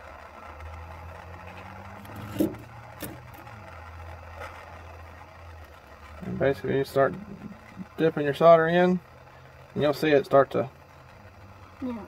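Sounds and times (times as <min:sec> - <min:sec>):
gas torch roaring: 0:00.0 - 0:12.0.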